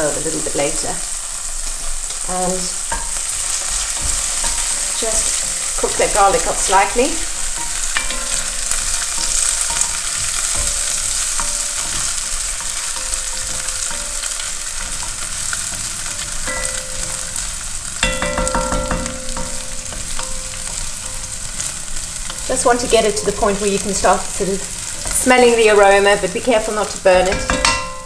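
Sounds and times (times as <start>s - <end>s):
garlic sizzling in hot oil: 0.0s - 28.0s
wooden spatula scraping a pot: 2.6s - 18.0s.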